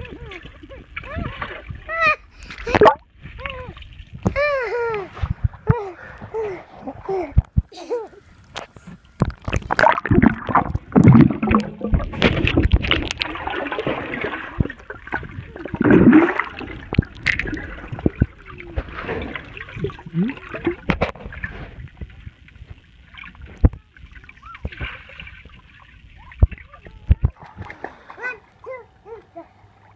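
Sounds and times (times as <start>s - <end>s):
muffled water sloshing and gurgling: 0.0s - 29.9s
sharp knocks and splashes: 8.5s - 22.2s, 24.6s - 28.4s.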